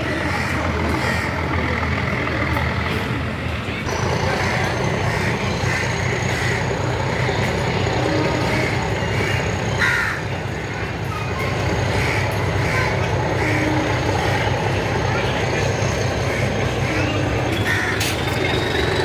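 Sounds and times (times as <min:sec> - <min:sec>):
coaches rolling on track: 0:00.0 - 0:19.0
diesel locomotive engine droning: 0:00.0 - 0:19.0
crow cawing: 0:04.3 - 0:07.4, 0:08.5 - 0:10.3, 0:16.3 - 0:18.1.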